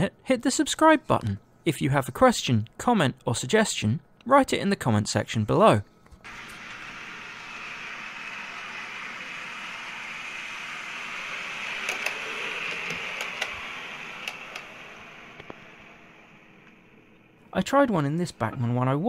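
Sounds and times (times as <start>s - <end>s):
model train wheels and motor hissing: 6.2s - 17.2s.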